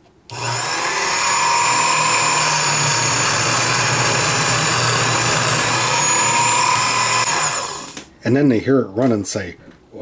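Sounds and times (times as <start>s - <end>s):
drill bit drilling into wood: 0.3s - 8.0s
drill press whining: 0.3s - 8.1s.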